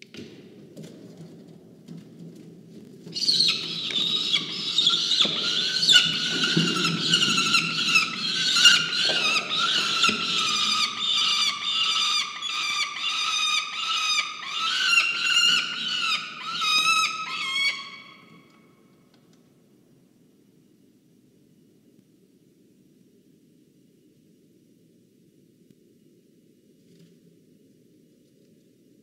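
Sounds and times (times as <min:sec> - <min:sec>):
falcons screaming: 0:03.2 - 0:18.3.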